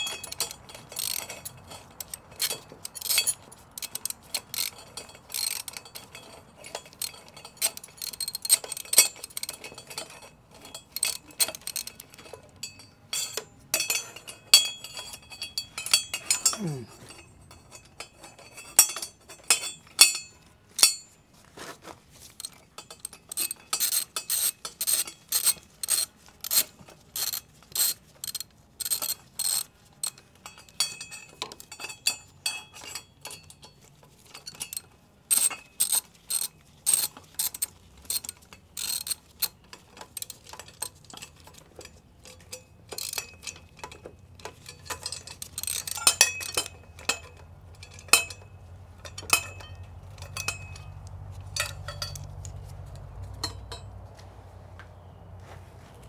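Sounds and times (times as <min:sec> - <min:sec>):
ratchet wrench clicking: 0:00.0 - 0:01.4, 0:02.0 - 0:05.8, 0:22.9 - 0:29.7, 0:34.7 - 0:39.5, 0:44.5 - 0:48.4
metallic clinks of tools: 0:00.0 - 0:21.1, 0:22.4 - 0:54.0.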